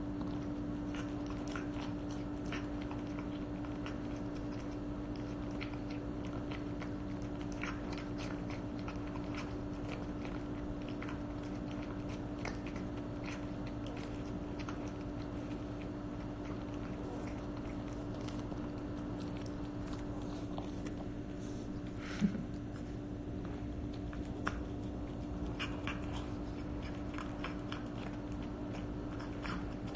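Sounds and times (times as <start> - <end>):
cat chewing and lapping food: 0.0 - 29.9
steady low hum: 0.0 - 29.9.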